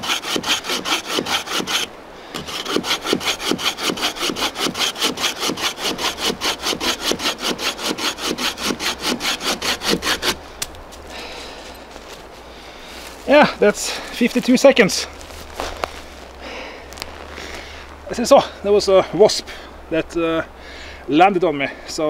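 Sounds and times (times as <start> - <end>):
saw rasping through log: 0.0 - 10.7.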